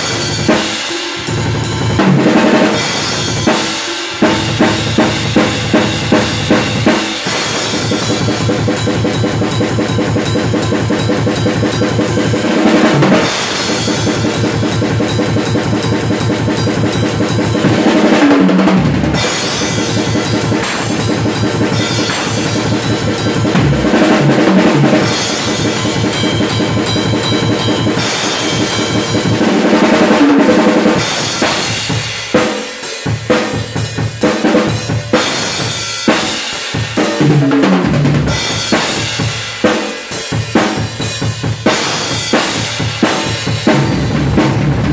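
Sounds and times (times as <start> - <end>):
drum kit playing fast: 0.0 - 44.9
cymbals ringing: 19.2 - 29.4.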